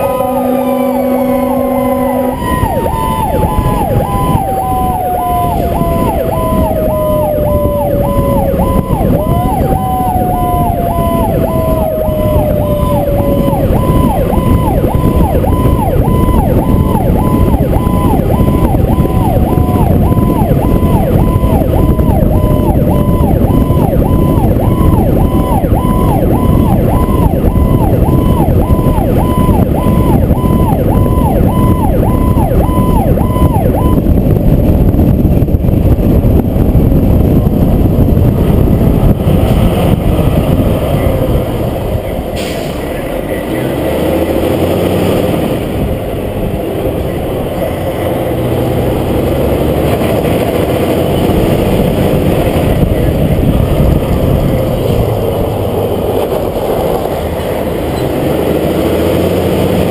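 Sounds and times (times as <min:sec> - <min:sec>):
air horn blast: 0:00.0 - 0:03.0
electronic siren pulsing: 0:00.0 - 0:36.0
wind and road noise: 0:00.0 - 0:59.9.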